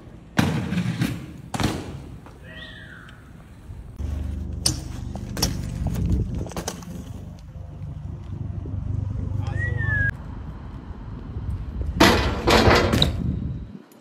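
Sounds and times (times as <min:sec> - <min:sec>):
bike tyres rolling on concrete: 0:00.0 - 0:14.0
bike tyres landing knocks: 0:00.4 - 0:02.4, 0:04.6 - 0:07.3.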